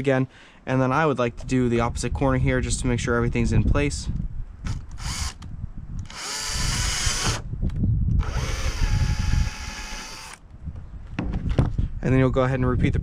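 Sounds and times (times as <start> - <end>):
cordless drill whining: 4.7 - 5.4, 6.0 - 7.4, 8.2 - 10.4.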